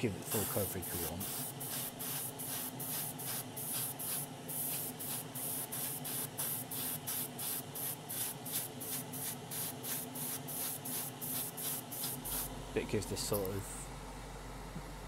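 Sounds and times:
airbrush spraying hiss: 0.3s - 12.6s
low steady hum: 11.9s - 15.0s.

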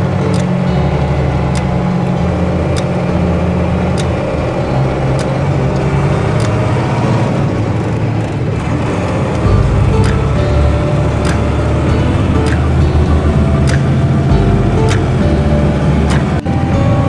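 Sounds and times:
diesel engine drone: 0.0s - 17.0s
light ticks: 13.6s - 14.0s, 14.8s - 15.2s.

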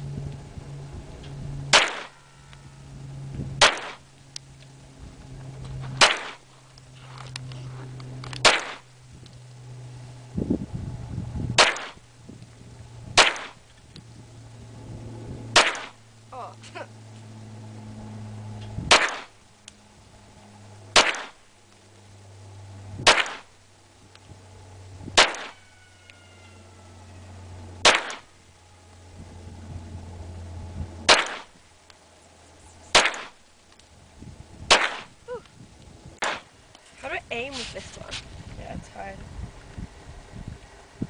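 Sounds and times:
steady low hum: 0.0s - 41.0s
pistol shots: 1.7s - 2.2s, 3.6s - 4.0s, 6.0s - 6.4s, 8.4s - 8.8s, 11.6s - 12.0s, 13.2s - 13.6s, 15.5s - 16.0s, 18.9s - 19.3s, 20.9s - 21.4s, 23.0s - 23.5s, 25.2s - 25.6s, 27.8s - 28.3s, 31.1s - 31.6s, 32.9s - 33.4s, 34.7s - 35.1s, 36.2s - 36.5s.

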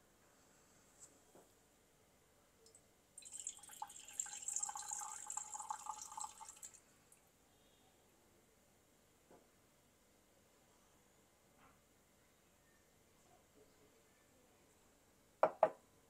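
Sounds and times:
liquid trickling into glass: 3.2s - 6.8s.

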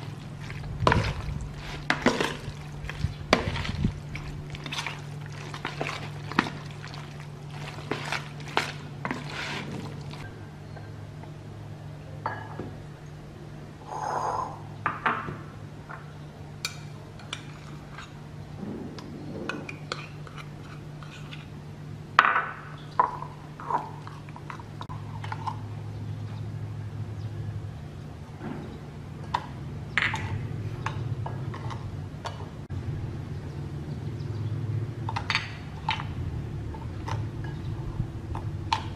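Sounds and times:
steady low hum: 0.0s - 22.2s.

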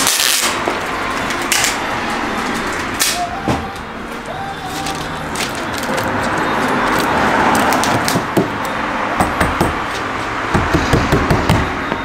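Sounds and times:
adhesive tape pulled: 0.0s - 1.8s, 2.8s - 3.2s.

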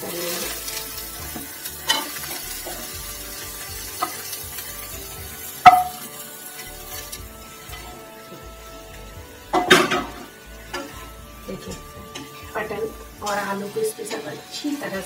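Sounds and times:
frying sizzle: 0.0s - 15.0s
pan and utensil knocks: 5.6s - 6.1s, 9.5s - 11.0s.

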